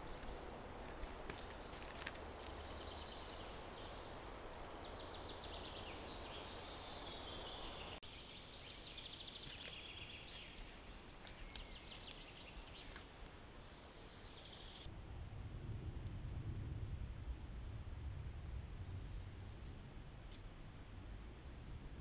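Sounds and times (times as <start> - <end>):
songbirds chirping and trilling: 1.5 - 14.9
steady rushing noise: 14.9 - 22.0.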